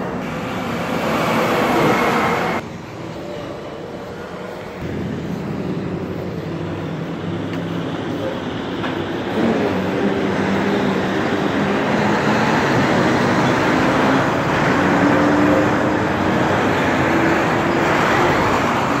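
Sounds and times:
diesel truck engines: 0.0 - 19.0.

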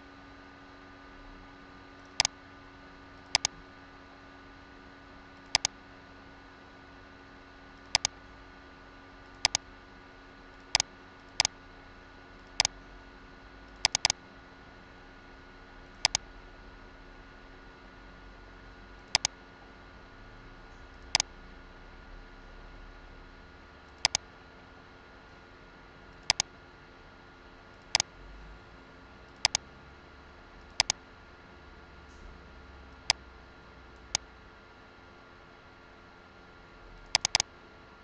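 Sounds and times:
faint electrical hum: 0.0 - 38.0
computer mouse clicking: 2.0 - 2.3, 3.3 - 3.6, 5.5 - 5.7, 7.8 - 8.2, 9.3 - 9.6, 12.4 - 12.8, 13.8 - 14.2, 16.0 - 16.2, 19.1 - 19.4, 20.9 - 21.3, 24.0 - 24.2, 26.2 - 26.5, 27.8 - 28.1, 29.4 - 29.6, 30.6 - 31.0, 37.1 - 37.5.

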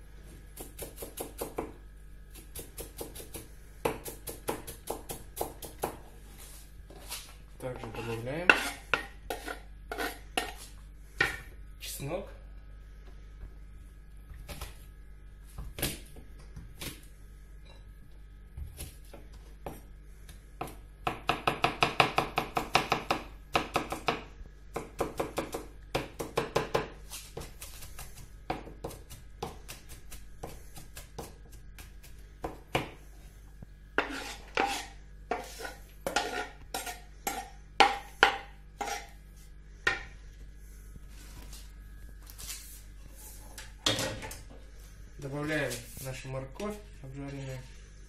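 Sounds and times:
knife chopping on wooden board: 0.6 - 1.8, 2.4 - 6.0, 20.6 - 33.0, 34.0 - 39.1.

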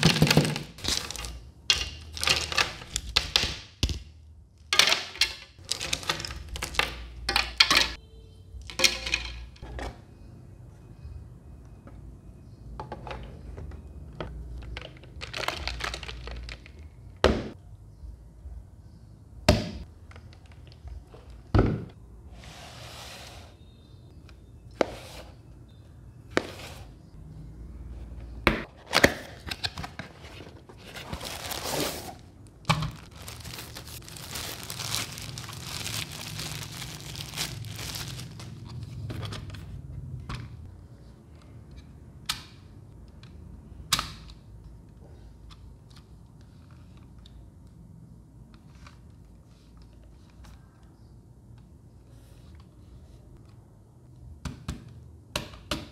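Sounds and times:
packaging tearing and crinkling: 0.0 - 1.3, 31.0 - 32.2, 32.9 - 38.7
packaging knocks and clicks: 14.5 - 16.8.

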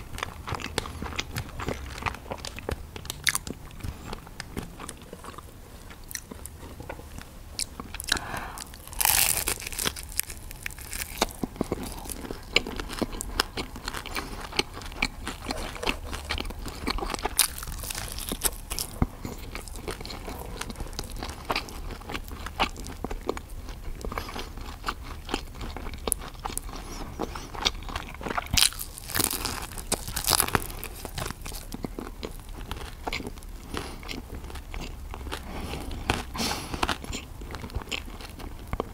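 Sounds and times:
crunchy chewing of food: 0.0 - 38.9.

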